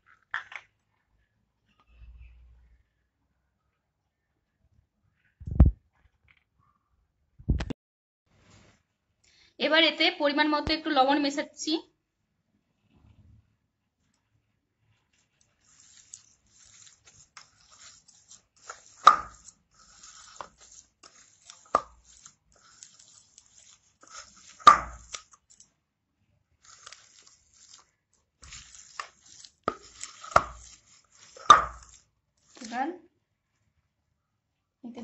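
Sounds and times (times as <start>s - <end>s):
hand kneading soft mash: 26.5s - 32.9s.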